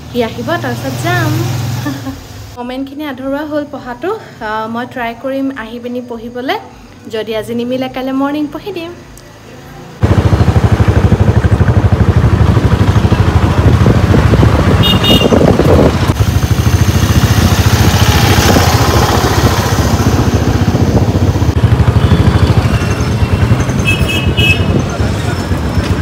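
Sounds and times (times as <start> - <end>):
motorbike engine and road noise: 0.0 - 2.6, 9.0 - 26.0
wind buffeting microphone: 10.0 - 26.0.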